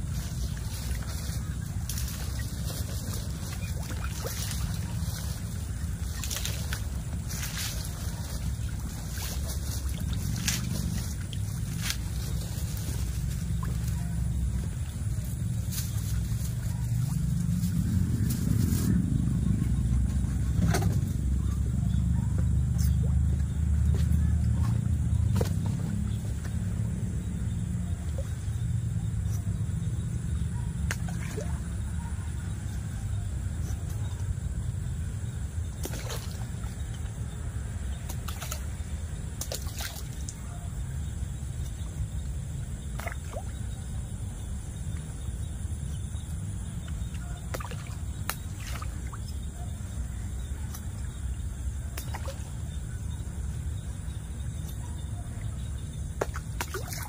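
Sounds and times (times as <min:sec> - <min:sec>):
water splashing: 0:00.0 - 0:17.6, 0:35.7 - 0:37.2, 0:37.9 - 0:40.5, 0:51.7 - 0:52.8, 0:56.0 - 0:57.0
steady low rumble: 0:00.0 - 0:57.0.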